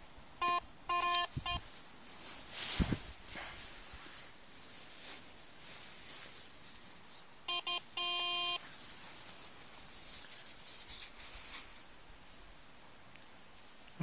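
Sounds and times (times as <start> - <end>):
metal detector beeps: 0.4 - 1.6, 7.5 - 8.6.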